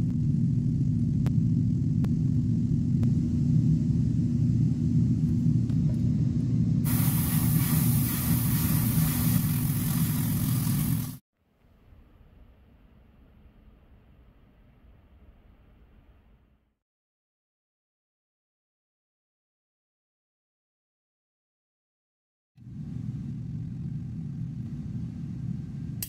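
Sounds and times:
low motor hum: 0.0 - 11.2, 22.6 - 26.0
airbrush hiss: 6.9 - 11.2.

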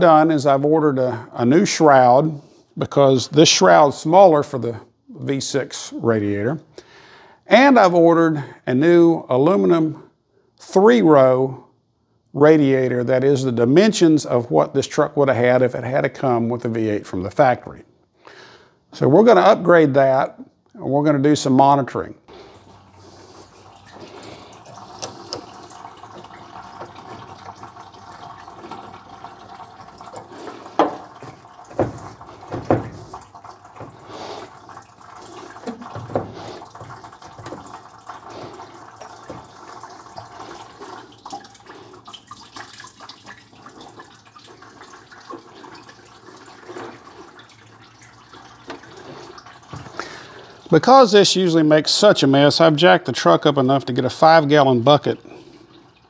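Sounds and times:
coolant pouring into a bucket: 22.3 - 56.0
knocks and clunks: 24.9 - 34.6, 35.6 - 40.4.

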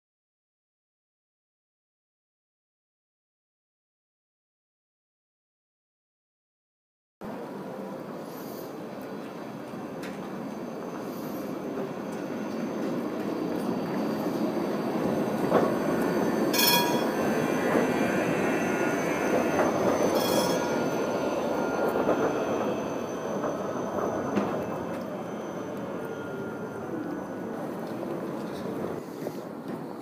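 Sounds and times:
tram wheels rumbling on rails: 7.3 - 30.0
high-pitched metallic squeals: 10.7 - 28.8.

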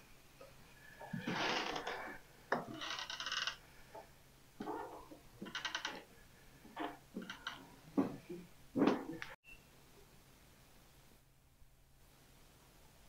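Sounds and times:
rapid squeaky creaks: 1.2 - 3.6, 5.4 - 6.1, 6.8 - 7.8
wooden boards creaking underfoot: 1.2 - 6.1, 6.7 - 9.2.

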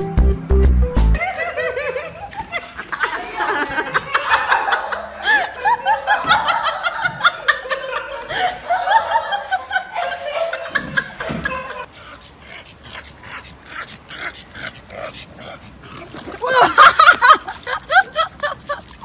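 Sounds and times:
people giggling: 1.2 - 11.9, 16.3 - 19.0.

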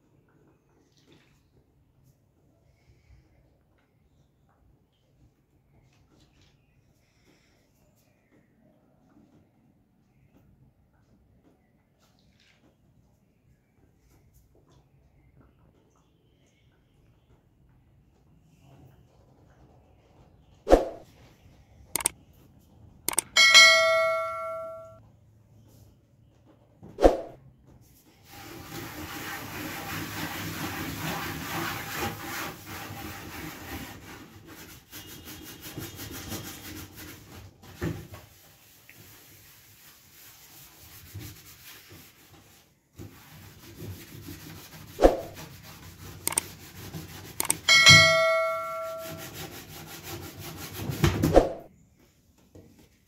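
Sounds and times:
short ringing ding: 23.3 - 25.0, 47.6 - 49.3
scouring pad scrubbing plastic: 28.3 - 37.6.

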